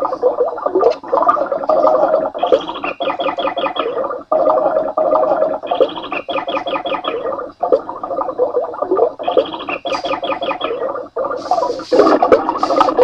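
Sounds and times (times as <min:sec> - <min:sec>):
recorded birds chirping on speaker: 0:01.6 - 0:13.0.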